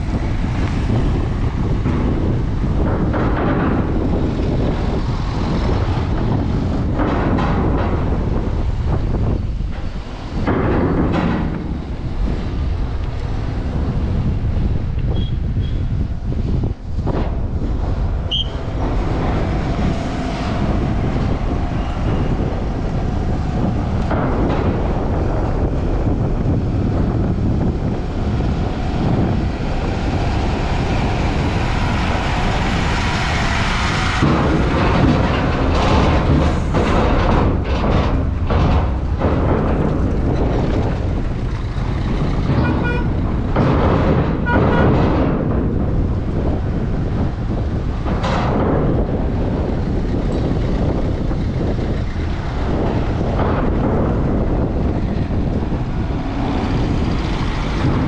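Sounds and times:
cars driving: 0.0s - 58.0s
diesel lorry engine: 0.0s - 58.0s.

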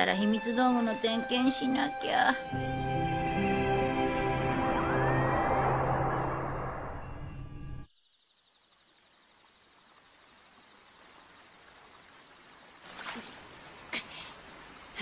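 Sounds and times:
music: 0.0s - 7.9s
gently flowing stream: 8.7s - 15.0s.

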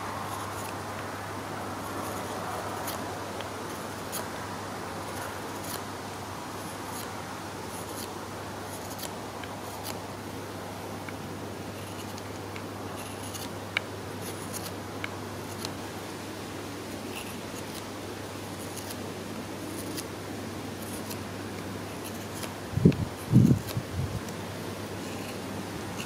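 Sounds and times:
knife scraping wood: 0.3s - 0.8s, 1.8s - 4.3s, 5.1s - 5.9s, 6.6s - 7.1s, 7.7s - 10.0s, 11.1s - 12.3s, 13.0s - 13.5s, 14.2s - 14.8s, 15.4s - 15.8s, 17.0s - 17.9s, 18.6s - 19.0s, 19.7s - 20.1s, 20.8s - 21.2s, 21.9s - 24.4s, 25.0s - 26.0s.

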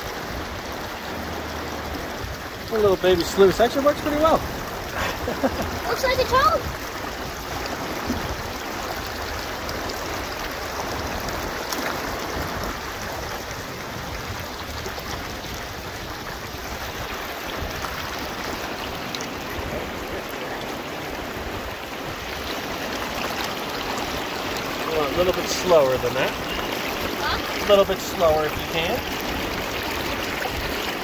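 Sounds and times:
creek water rushing over rocks: 0.0s - 31.0s.

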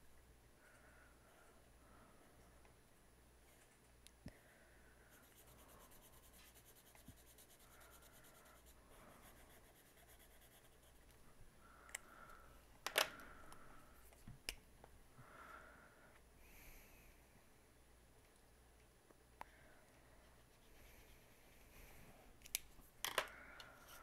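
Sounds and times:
marker rubbing on paper: 5.2s - 11.0s.

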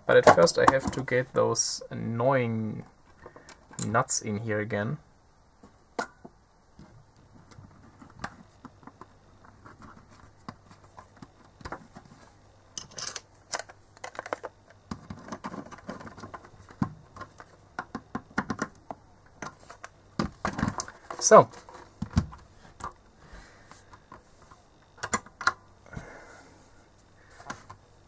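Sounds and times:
small screws and nuts clicking: 12.8s - 16.0s.

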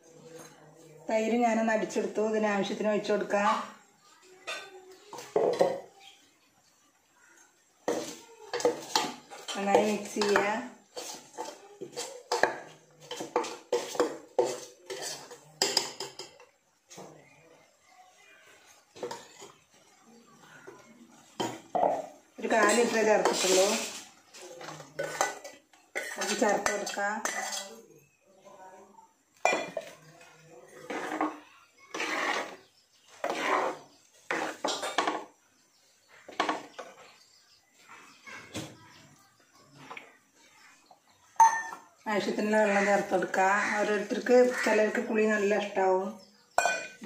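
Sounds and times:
metal spoon scraping steel bowl: 7.9s - 16.3s, 21.9s - 28.2s, 29.6s - 35.2s.

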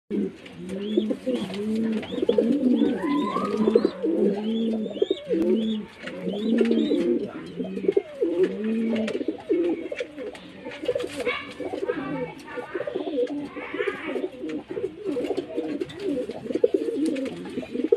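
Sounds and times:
pigeons cooing: 0.1s - 17.9s.

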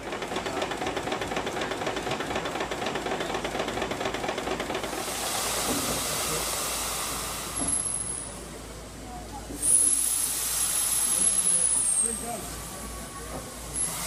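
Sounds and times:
steam engine chuffing: 0.0s - 14.0s
loud steam hiss: 3.9s - 14.0s.

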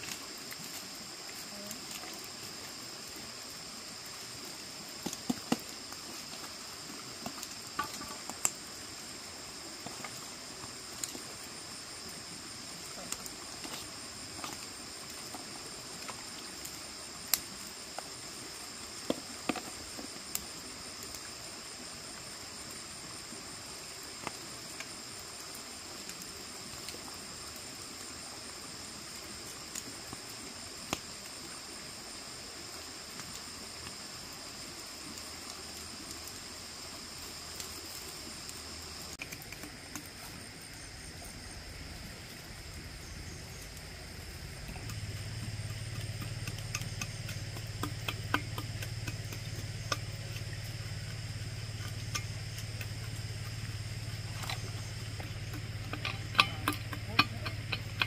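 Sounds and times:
insect chorus: 0.0s - 58.0s
sharp clicks and knocks: 45.7s - 50.4s, 54.3s - 58.0s.

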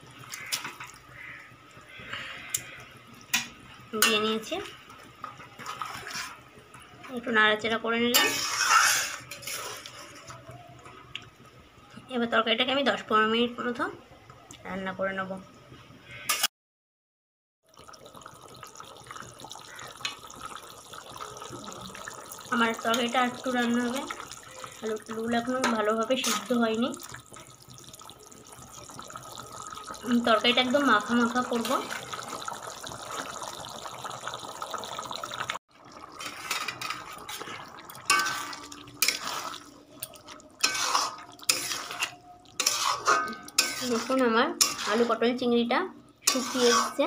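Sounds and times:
curry bubbling: 0.0s - 11.6s, 17.6s - 45.6s, 46.2s - 47.0s
spatula scraping a pan: 5.6s - 6.5s, 8.1s - 10.4s, 25.6s - 26.6s, 36.2s - 39.7s, 40.6s - 45.2s, 46.2s - 47.0s.

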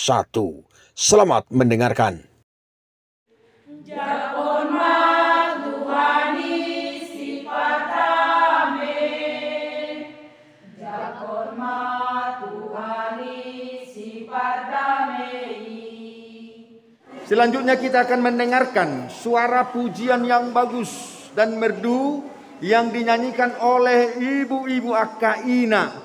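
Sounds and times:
women's choir singing a hymn: 3.7s - 18.4s.

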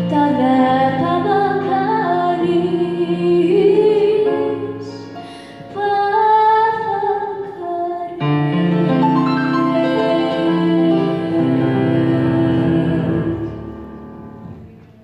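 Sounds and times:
girl singing: 0.0s - 4.9s, 5.7s - 8.9s
grand piano accompaniment: 0.0s - 15.0s.

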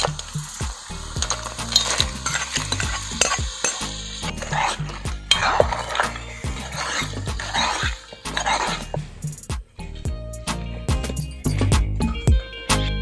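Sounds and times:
metal ladle scraping a pan: 0.0s - 9.5s
masala sizzling: 0.0s - 11.7s.

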